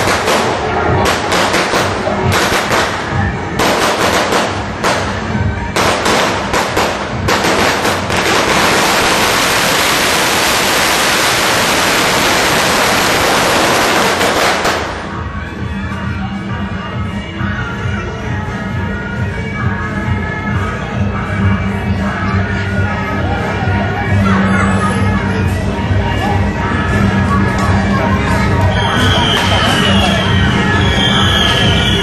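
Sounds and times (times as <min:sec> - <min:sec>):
firecrackers crackling: 0:00.0 - 0:15.3, 0:28.8 - 0:32.0.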